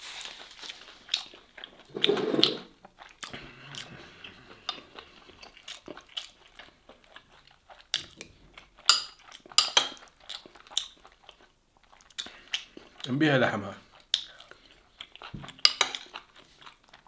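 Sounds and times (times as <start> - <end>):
man chewing with wet smacks: 2.8 - 13.2, 13.8 - 17.0.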